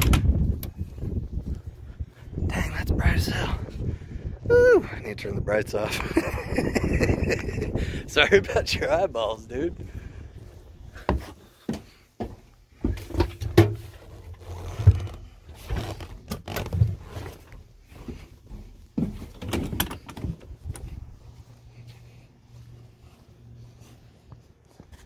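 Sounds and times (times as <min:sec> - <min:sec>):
footsteps while walking: 0:09.8 - 0:25.0.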